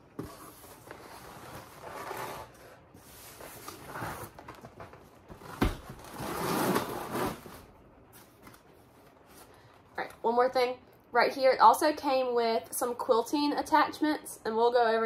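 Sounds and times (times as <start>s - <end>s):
cardboard rustling and scraping: 0.1s - 9.5s.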